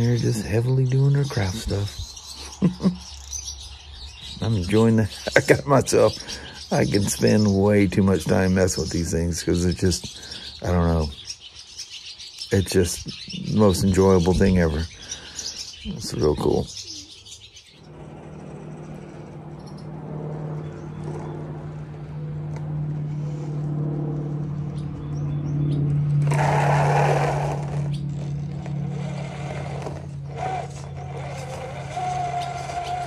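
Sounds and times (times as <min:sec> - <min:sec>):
scraping rasp: 0:26.2 - 0:33.0
toy car motor whining: 0:26.2 - 0:33.0.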